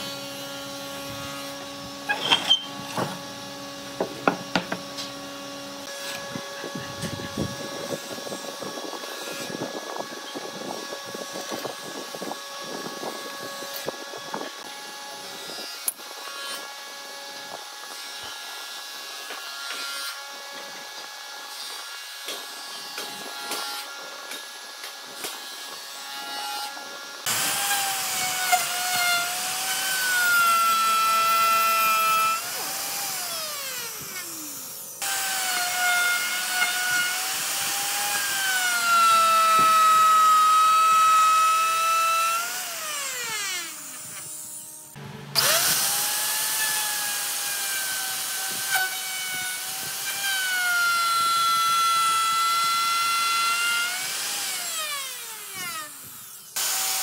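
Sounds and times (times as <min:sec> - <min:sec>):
electric router whining: 0:00.0 - 0:57.0
motor winding down: 0:42.4 - 0:48.9.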